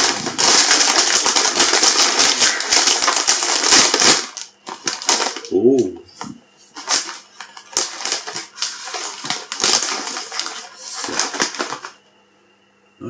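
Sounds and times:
foil bag crinkling: 0.0s - 5.7s, 6.7s - 12.0s.

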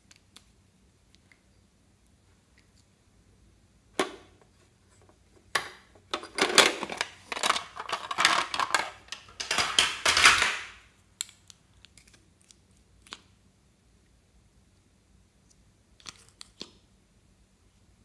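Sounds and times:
tubes rattling in plastic case: 6.0s - 10.7s.

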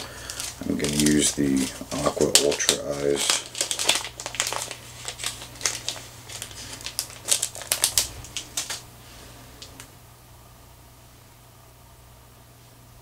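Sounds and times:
plastic packets crinkling: 0.0s - 9.9s.

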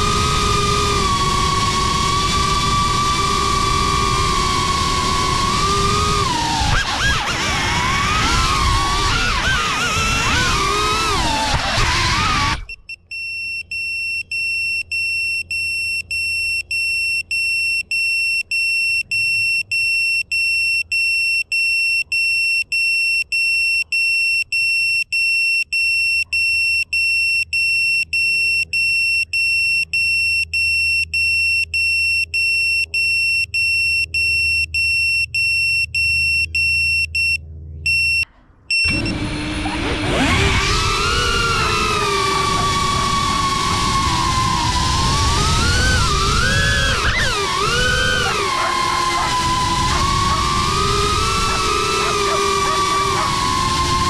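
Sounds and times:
high-pitched electronic beeping: 12.7s - 39.2s.

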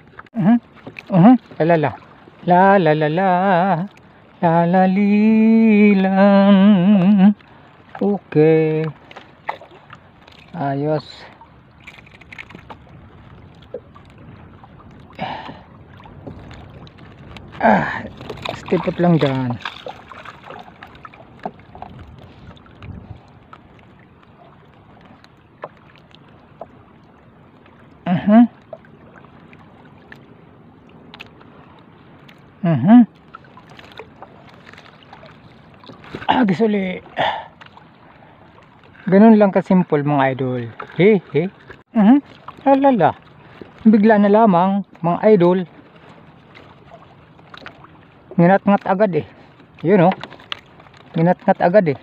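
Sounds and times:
light wind: 0.0s - 52.0s
water lapping against boat: 0.0s - 52.0s
man's wordless vocal sound: 0.4s - 7.4s, 17.6s - 19.6s, 28.1s - 28.6s, 32.6s - 33.1s, 36.2s - 37.5s.

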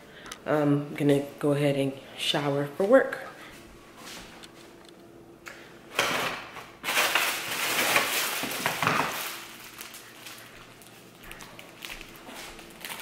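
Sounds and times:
plastic bag crinkling: 6.8s - 13.0s.

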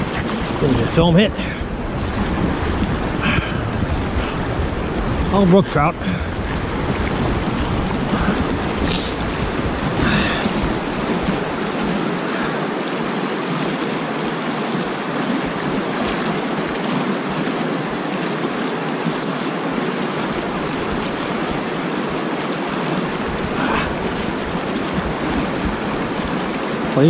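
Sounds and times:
water rushing over spillway: 0.0s - 27.0s.

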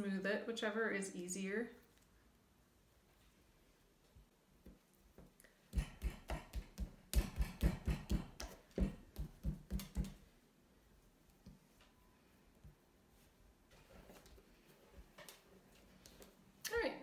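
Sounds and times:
palm slapping clay: 4.6s - 10.3s.

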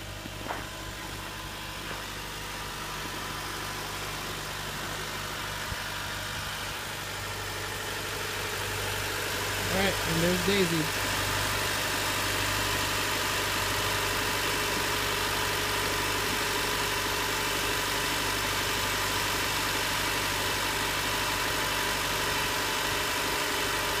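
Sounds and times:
car engine idling: 0.0s - 24.0s.

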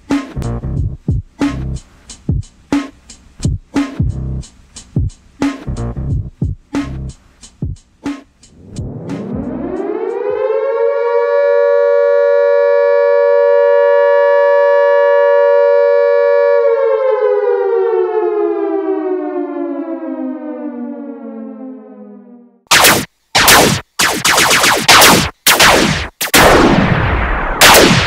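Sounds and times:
warning siren wailing: 8.8s - 22.8s.

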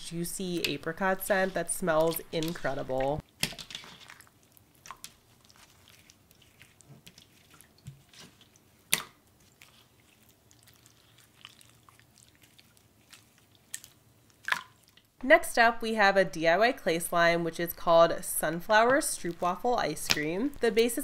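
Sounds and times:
slime squishing: 0.5s - 15.1s.

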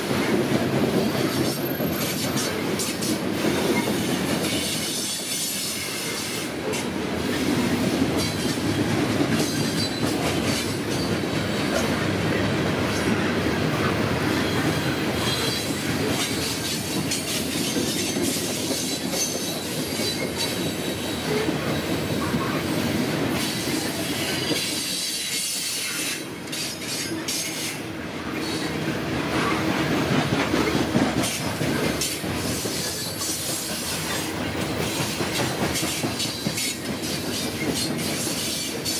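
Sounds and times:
steel wheels clattering on track: 0.0s - 13.2s, 14.4s - 22.5s, 29.4s - 38.9s.

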